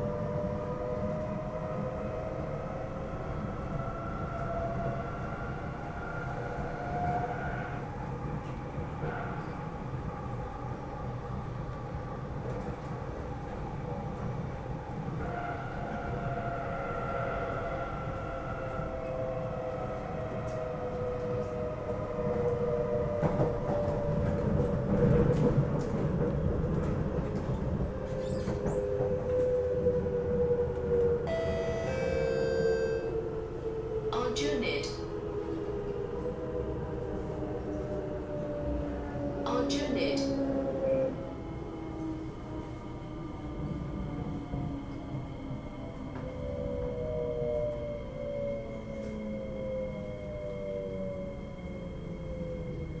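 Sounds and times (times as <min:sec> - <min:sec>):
train wheels rumbling on rail: 0:00.0 - 0:33.3
traction motor whine: 0:31.3 - 0:33.1.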